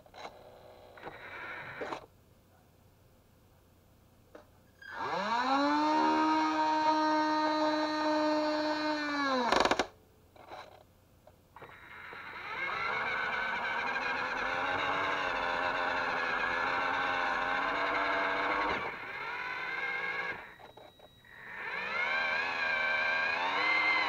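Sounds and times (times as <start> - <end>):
toy electric motor whining: 4.8 - 9.9, 11.6 - 24.0.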